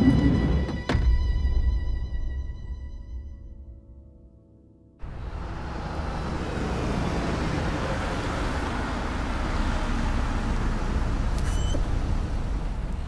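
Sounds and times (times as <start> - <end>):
car driving by: 5.0 - 13.0
traffic rumble: 5.0 - 13.0.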